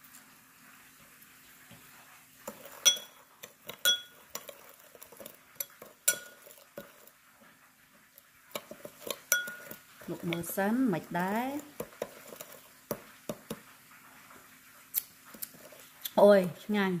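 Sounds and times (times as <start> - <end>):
spoon clinking against glass bowl: 2.7 - 4.6, 5.6 - 7.0, 8.6 - 10.4.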